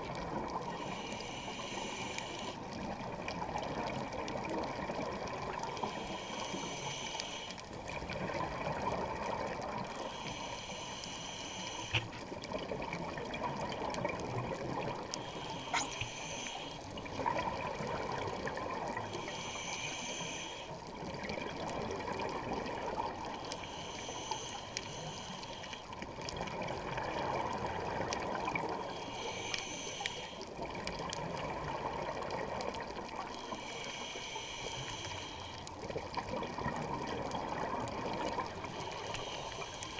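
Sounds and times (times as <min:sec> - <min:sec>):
regulator breath hiss: 0:00.8 - 0:02.6, 0:05.9 - 0:07.6, 0:10.1 - 0:12.1, 0:15.2 - 0:16.8, 0:19.1 - 0:20.7, 0:23.6 - 0:25.8, 0:28.9 - 0:30.4, 0:33.5 - 0:35.6, 0:38.8 - 0:39.9.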